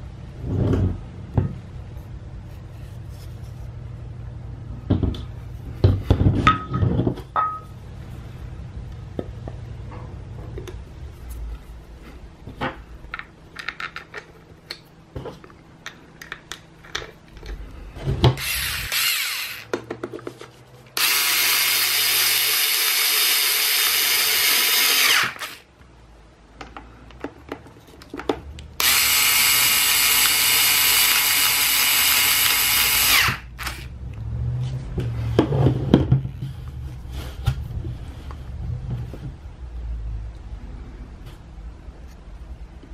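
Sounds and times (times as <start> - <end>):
electric screwdriver running: 18.4 - 19.8, 21.0 - 25.7, 28.8 - 33.9.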